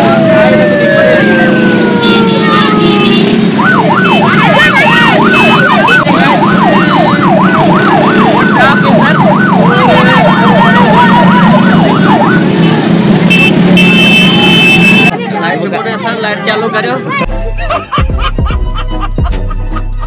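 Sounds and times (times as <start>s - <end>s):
siren yelping: 0.0s - 13.4s
siren wail: 0.0s - 13.5s.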